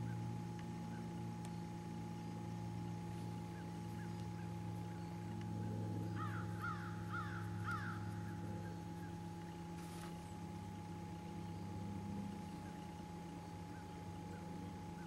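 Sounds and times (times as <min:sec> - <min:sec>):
boat motor humming: 0:00.0 - 0:15.0
crow cawing: 0:06.1 - 0:08.4.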